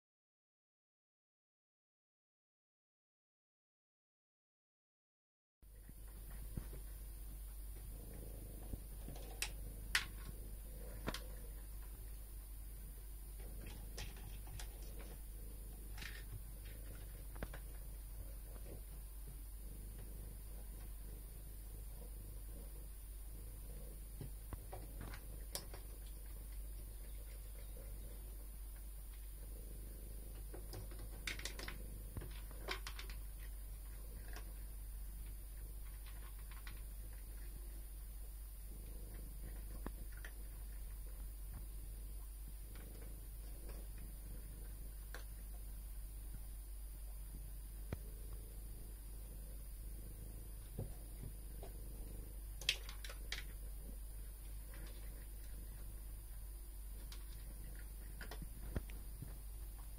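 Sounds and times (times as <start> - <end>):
faint steady hum: 5.6 - 59.9
cat crunching dry kibble: 13.4 - 18.8, 29.5 - 34.6, 35.2 - 37.8, 50.1 - 56.0, 56.9 - 59.9.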